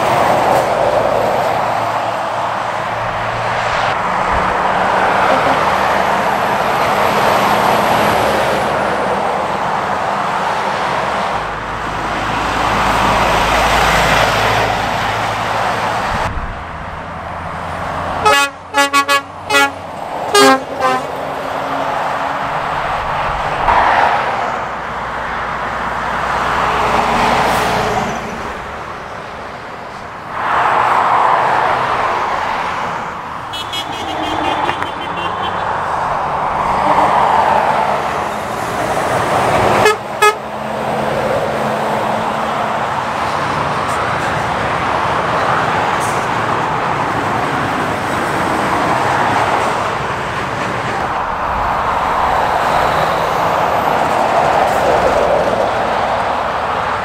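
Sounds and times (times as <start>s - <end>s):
vehicles passing at speed: 0.0s - 57.0s
vehicle horn short toots: 18.2s - 21.1s, 33.5s - 35.6s, 39.8s - 40.4s.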